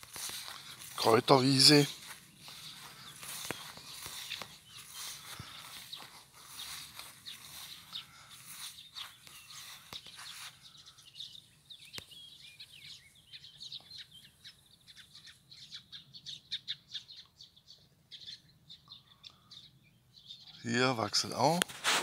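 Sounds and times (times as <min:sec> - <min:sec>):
footsteps on grass: 0:00.0 - 0:11.3, 0:21.2 - 0:22.0
small birds chirping: 0:00.0 - 0:21.8.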